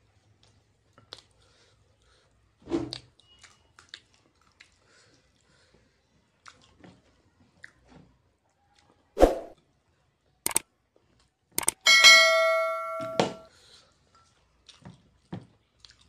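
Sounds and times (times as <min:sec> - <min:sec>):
person chewing food: 0:00.3 - 0:01.6, 0:03.2 - 0:07.9, 0:14.2 - 0:16.0.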